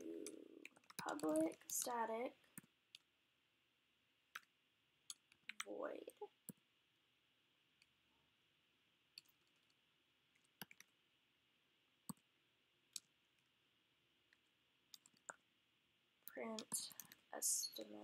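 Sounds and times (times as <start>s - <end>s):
keyboard keys clicking: 0.0s - 1.9s.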